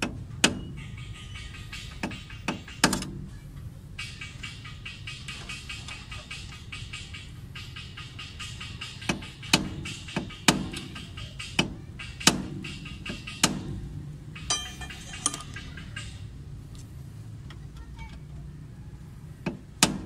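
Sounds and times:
hammer striking metal: 14.4 - 15.6.

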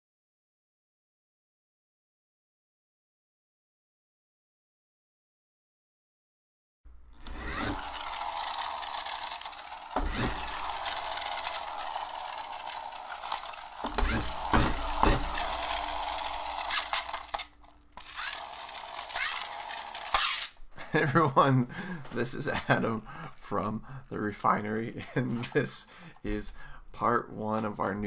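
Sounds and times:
toy electric motor whirring: 7.1 - 20.6.

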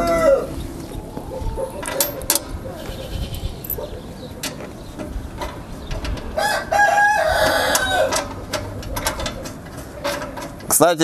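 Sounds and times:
rooster crowing: 0.0 - 3.6, 6.4 - 8.3
metal parts clicking and knocking: 1.8 - 2.4.

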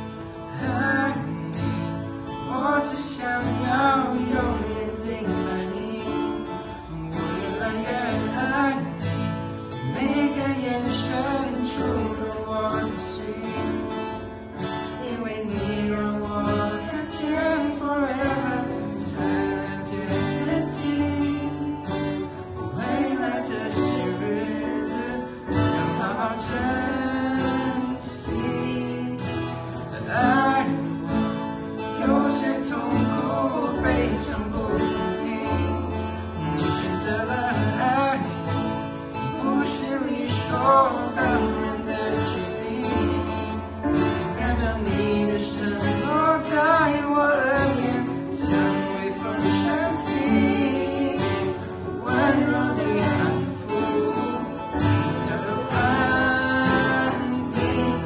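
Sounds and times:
acoustic guitar strumming: 0.0 - 58.0
digital piano chords: 0.0 - 58.0
group singing a worship song: 16.4 - 58.0.

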